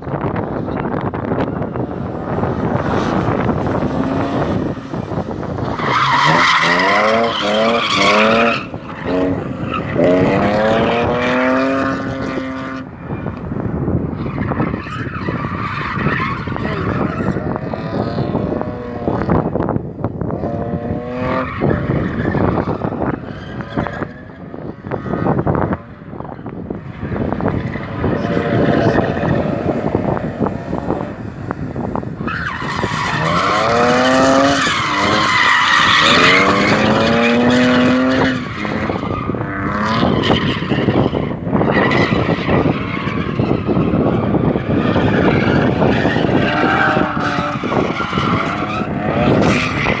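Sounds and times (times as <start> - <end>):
car engine revving hard: 33.0 - 40.3.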